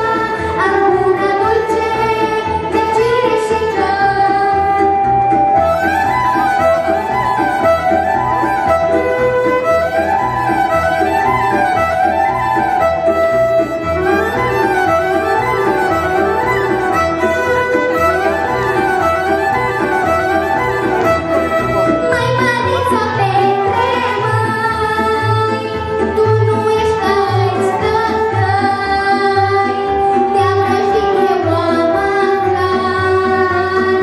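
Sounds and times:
keyboard accompaniment: 0.0 - 34.0
violin quick runs: 3.9 - 24.6.

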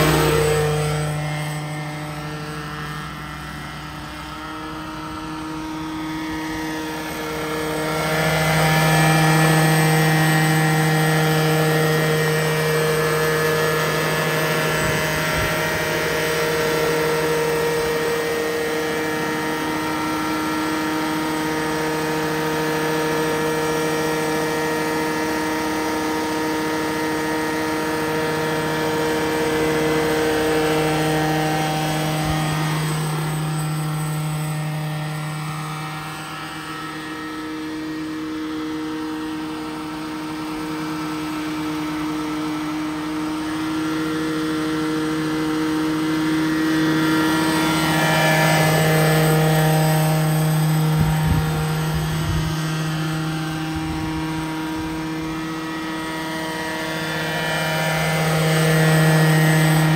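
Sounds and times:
model helicopter engine and rotors: 0.0 - 59.9.

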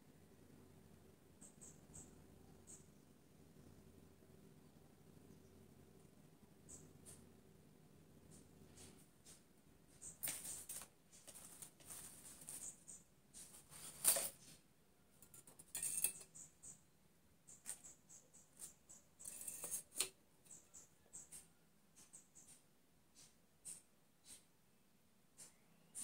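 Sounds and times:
artificial flowers rustling: 9.9 - 14.6.

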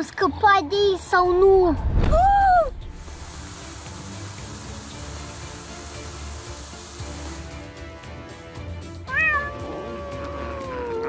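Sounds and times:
steady hiss and low rumble: 1.2 - 4.1
distorted cat-like meow: 9.1 - 11.0.

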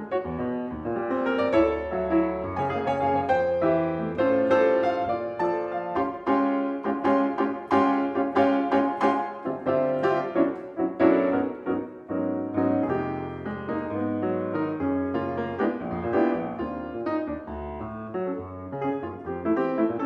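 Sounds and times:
jazz piano playing: 0.0 - 20.0.

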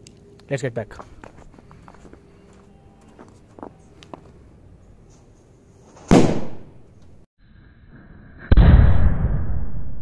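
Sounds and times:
firecracker loud bang: 6.1 - 6.7, 8.5 - 9.8.

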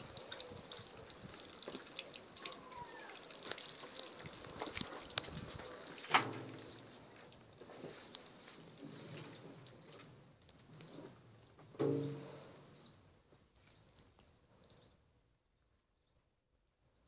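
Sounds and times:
faint drips: 0.0 - 11.4.

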